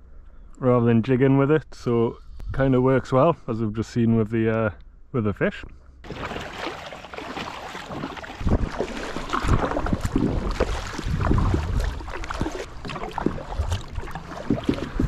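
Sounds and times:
paddle splashing in water: 0:06.0 - 0:15.0.

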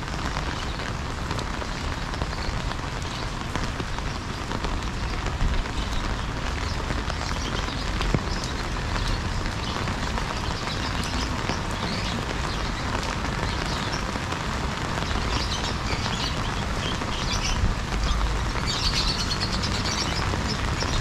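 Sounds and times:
rain hiss: 0:00.0 - 0:21.0
traffic rumble: 0:00.0 - 0:21.0.

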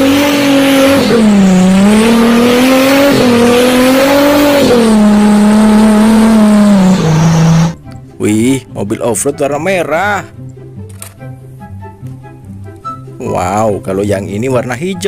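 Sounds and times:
engine revving in mud: 0:00.0 - 0:07.8.

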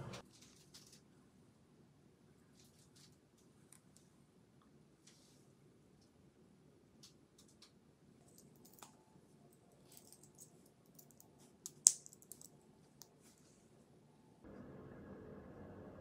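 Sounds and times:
jewelry clicks and metal taps: 0:09.9 - 0:13.1.

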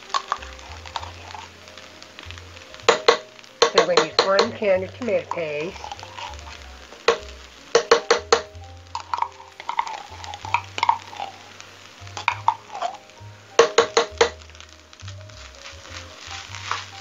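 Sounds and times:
background music bass line: 0:00.0 - 0:17.0
metal spoon scraping in tin can: 0:05.1 - 0:06.6.

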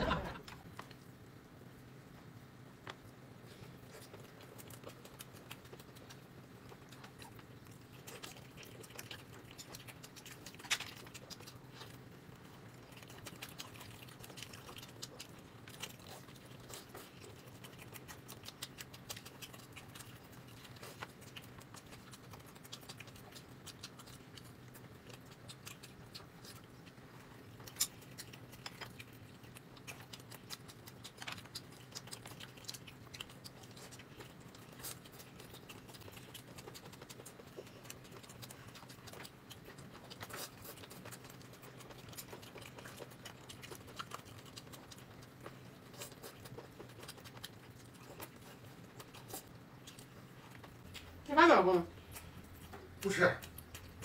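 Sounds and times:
low steady hum: 0:00.0 - 0:54.0
soft chewing: 0:00.0 - 0:54.0.

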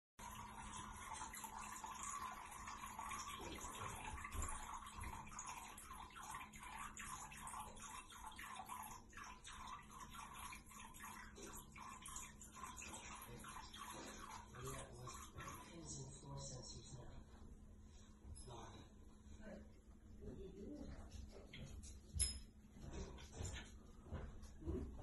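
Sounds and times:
urine trickling into toilet water: 0:00.2 - 0:17.0.

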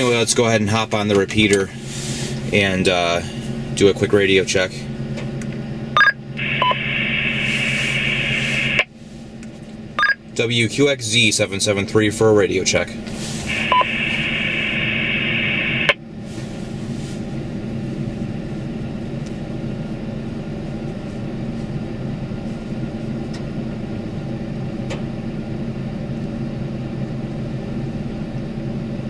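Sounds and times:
truck engine idling: 0:00.0 - 0:10.4
radio speaker hiss: 0:06.4 - 0:08.9, 0:12.7 - 0:16.5
radio squelch click: 0:06.4 - 0:08.9, 0:13.5 - 0:16.0.

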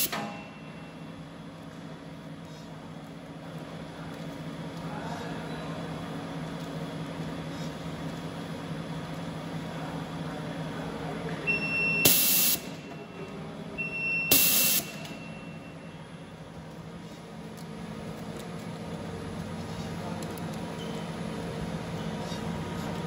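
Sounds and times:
machine hum: 0:00.0 - 0:23.0
high steady beep: 0:11.5 - 0:13.0, 0:13.8 - 0:16.0.

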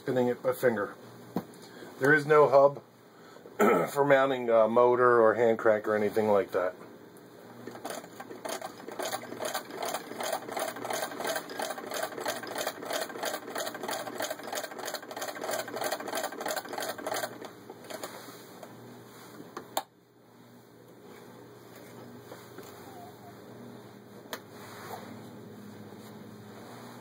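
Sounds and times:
hand-cranked sewing machine clatter: 0:07.7 - 0:18.0.

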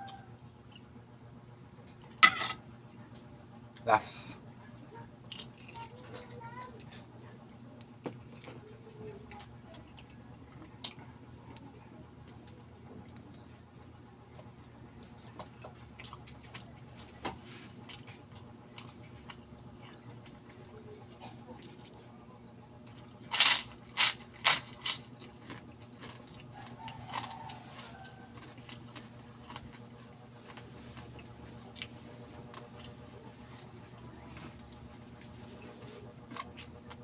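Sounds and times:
crispy pork rind crunching: 0:05.1 - 0:37.0
chewing and wet mouth clicks: 0:24.8 - 0:33.0.

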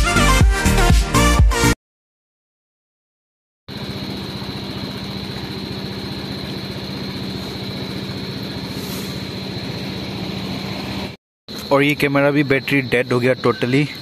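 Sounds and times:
scooter engine idling: 0:03.7 - 0:11.2.

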